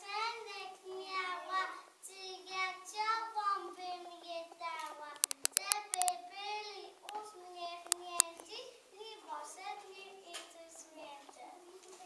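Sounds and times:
sharp clicks: 0:05.2 - 0:06.1.

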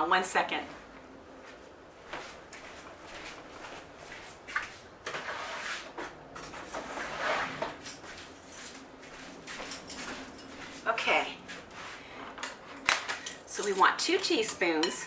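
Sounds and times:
utensils clinking: 0:09.6 - 0:10.6, 0:12.7 - 0:15.0.

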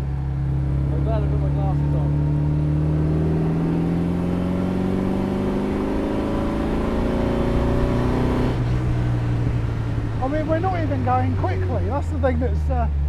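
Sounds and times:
car engine accelerating: 0:00.0 - 0:13.0
road noise: 0:00.0 - 0:13.0.

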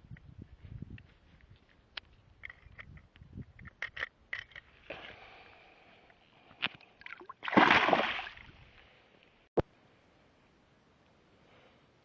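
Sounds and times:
fish splashing in shallow water: 0:07.0 - 0:08.5
water sloshing: 0:07.0 - 0:08.5.

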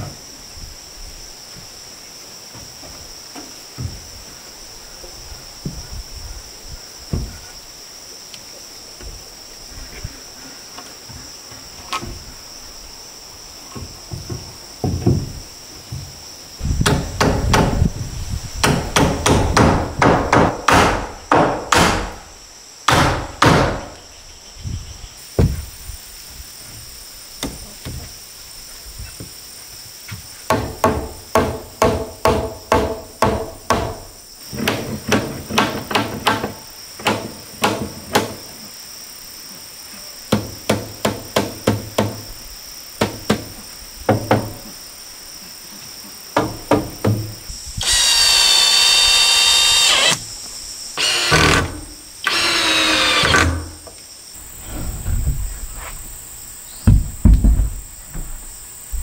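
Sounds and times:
high insect drone: 0:00.0 - 0:59.0
hammer knocking on wood: 0:13.8 - 0:16.1, 0:18.6 - 0:22.1, 0:30.5 - 0:34.0, 0:44.1 - 0:44.6, 0:46.4 - 0:47.4, 0:56.8 - 0:57.8.

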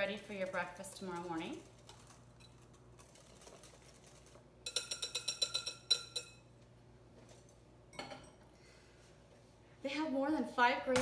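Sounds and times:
whisk clinking in glass bowl: 0:00.3 - 0:06.5.

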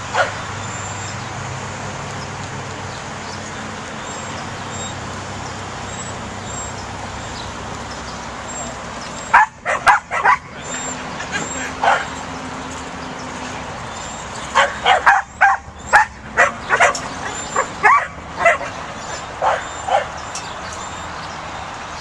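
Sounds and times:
puppy barking: 0:00.1 - 0:00.4, 0:09.3 - 0:10.6, 0:11.7 - 0:12.2, 0:14.5 - 0:20.2.

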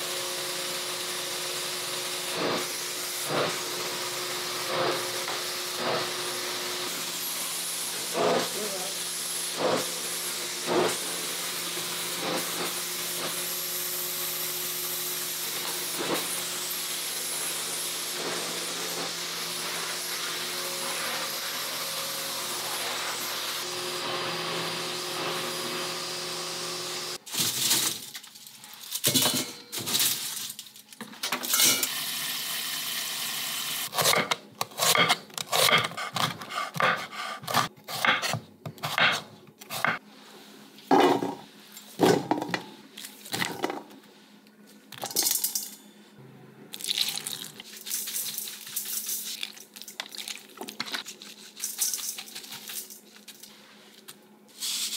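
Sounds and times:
vacuum cleaner running: 0:00.0 - 0:27.8, 0:31.5 - 0:34.4, 0:39.7 - 0:42.7
knife chopping on wooden board: 0:34.0 - 0:40.0.

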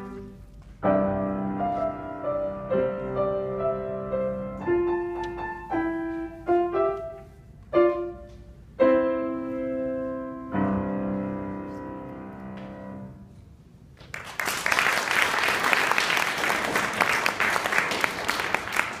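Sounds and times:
audience applauding: 0:14.0 - 0:19.0.

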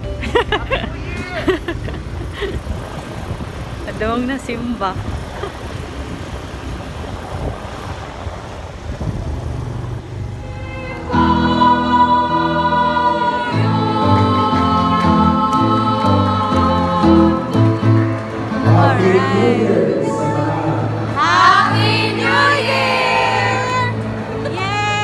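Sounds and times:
group singing a hymn: 0:10.4 - 0:24.7.

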